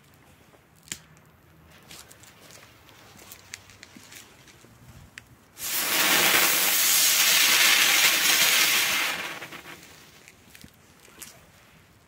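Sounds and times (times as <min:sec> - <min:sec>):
firework fountain hissing: 0:05.6 - 0:10.2
fuse crackling: 0:05.6 - 0:10.4.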